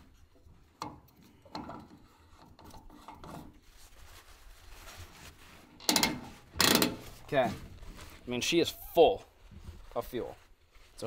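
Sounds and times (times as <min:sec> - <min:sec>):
paper towel rubbing and scraping: 0:03.4 - 0:11.0.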